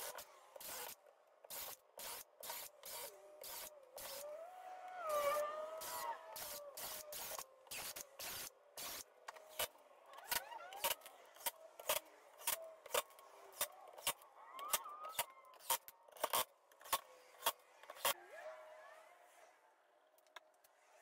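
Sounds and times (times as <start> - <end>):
drill and impact driver bursts: 0.0 - 4.3, 5.3 - 9.7.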